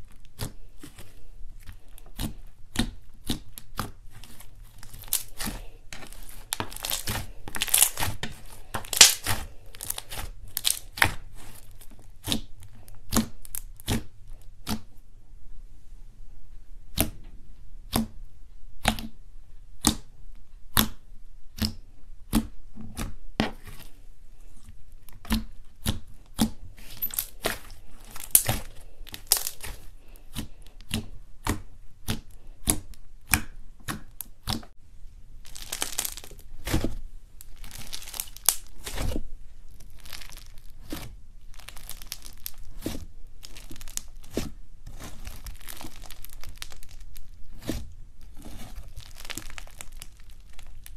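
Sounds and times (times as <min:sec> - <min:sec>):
slime popping and crackling: 0:00.0 - 0:14.9, 0:25.3 - 0:34.8, 0:35.4 - 0:50.9.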